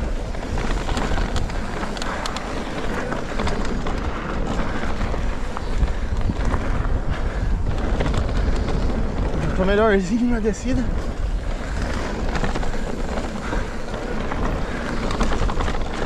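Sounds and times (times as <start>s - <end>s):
bike clicks and rattles: 0.0s - 16.0s
tyres rumbling on dirt: 0.0s - 16.0s
wind rushing over microphone: 0.0s - 16.0s.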